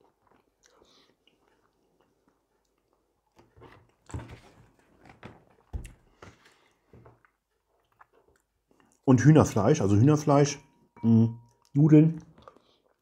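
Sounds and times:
person chewing: 0:00.0 - 0:04.1, 0:05.8 - 0:09.0, 0:11.5 - 0:13.0.

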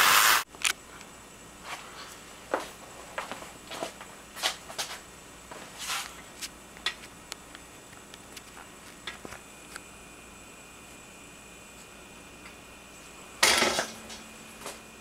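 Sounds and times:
faint high whine: 0:00.0 - 0:15.0
crackles and sharp clicks: 0:00.1 - 0:00.8, 0:06.4 - 0:09.9.

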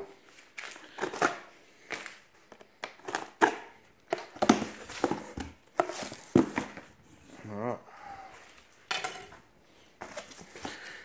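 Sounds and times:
cardboard and plastic rustling: 0:00.0 - 0:07.3, 0:09.8 - 0:11.0.

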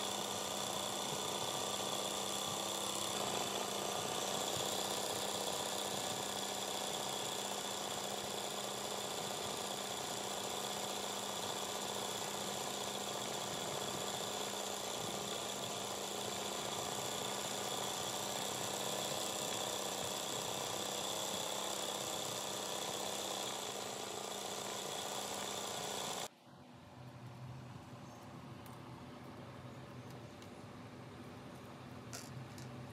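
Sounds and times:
sewing machine stitching rapidly: 0:00.0 - 0:26.3.

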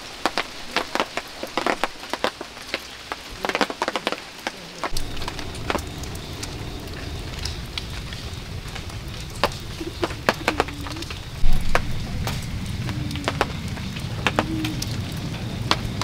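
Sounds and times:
raindrops tapping and dripping: 0:00.0 - 0:16.0
low steady rumble: 0:04.9 - 0:16.0.

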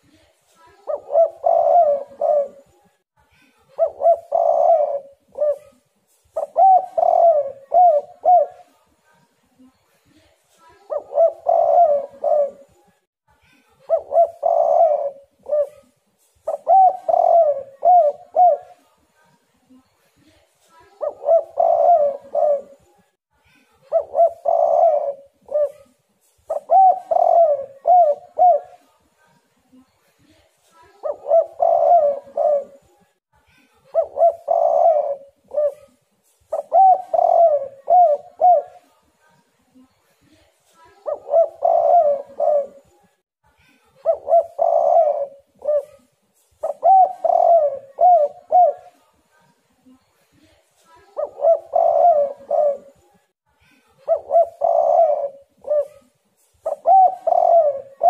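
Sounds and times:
dove cooing: 0:00.8 - 0:02.8, 0:03.7 - 0:08.8, 0:10.8 - 0:12.8, 0:13.8 - 0:18.8, 0:21.0 - 0:22.9, 0:23.9 - 0:28.9, 0:30.9 - 0:33.0, 0:33.9 - 0:38.9, 0:41.0 - 0:43.1, 0:44.0 - 0:49.0, 0:51.1 - 0:53.1, 0:54.1 - 0:58.0.

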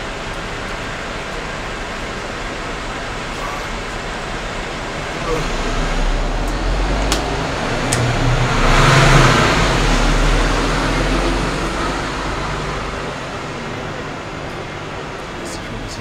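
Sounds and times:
motor vehicle passing: 0:03.2 - 0:16.0.

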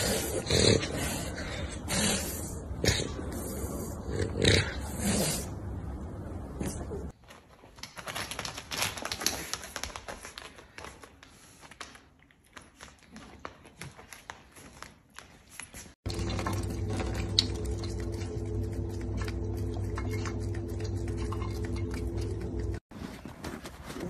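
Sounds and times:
animal feet clicking on tiles: 0:07.6 - 0:16.0.

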